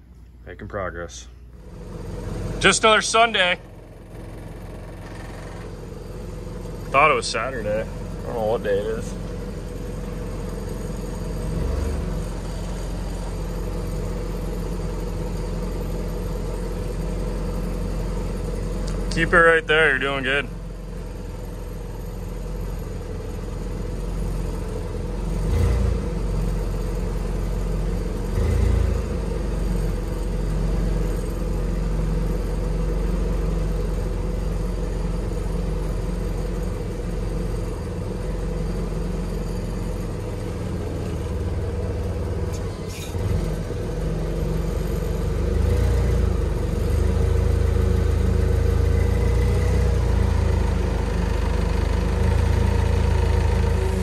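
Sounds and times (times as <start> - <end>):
forklift engine running: 0.0 - 54.0.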